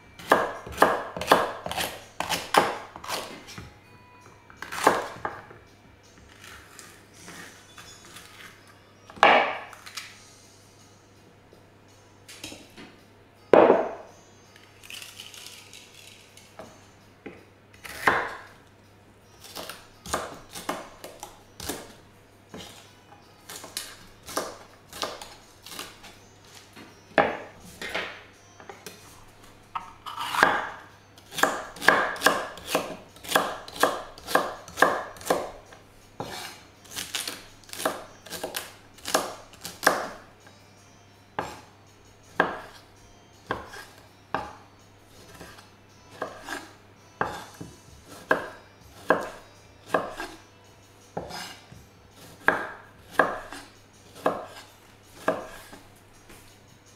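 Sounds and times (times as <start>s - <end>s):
knife chopping on wooden board: 0.2s - 3.4s, 4.7s - 5.4s, 9.2s - 9.8s, 13.6s - 14.0s, 16.6s - 18.4s, 19.5s - 21.9s, 27.2s - 28.2s, 29.8s - 35.6s, 36.2s - 37.1s, 37.7s - 40.2s, 42.4s - 42.8s, 43.5s - 44.6s, 45.2s - 46.6s, 47.2s - 50.4s, 51.2s - 51.6s, 52.2s - 53.6s, 54.2s - 54.6s, 55.2s - 55.8s.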